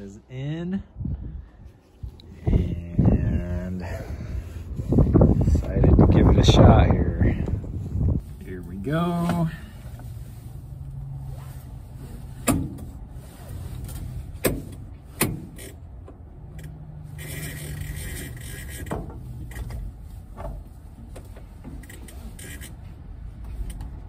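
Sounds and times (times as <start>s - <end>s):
seat belt webbing sliding: 8.2s - 15.8s, 16.6s - 24.0s.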